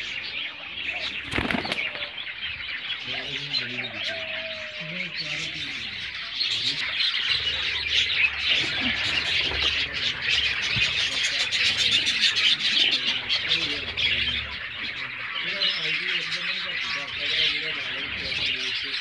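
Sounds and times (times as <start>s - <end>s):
low pigeon calls: 0.0s - 18.8s
small birds chirping: 0.0s - 19.0s
pigeon wings flapping: 1.3s - 2.0s.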